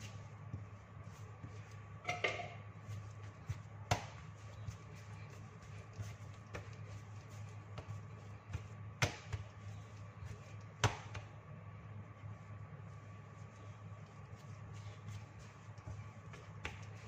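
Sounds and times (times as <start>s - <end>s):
dough thuds and slaps: 1.4s - 11.4s, 14.3s - 17.0s.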